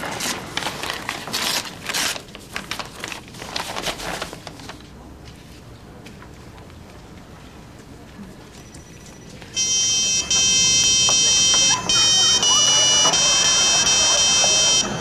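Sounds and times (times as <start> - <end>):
envelope tearing: 0.0 - 4.8
paper rustling: 0.0 - 7.5.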